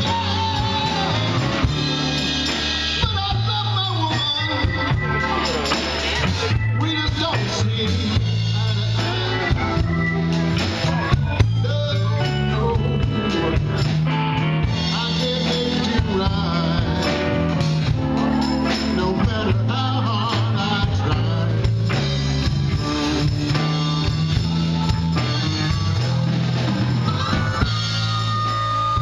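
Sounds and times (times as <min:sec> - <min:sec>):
live band playing amplified song: 0:00.0 - 0:29.0.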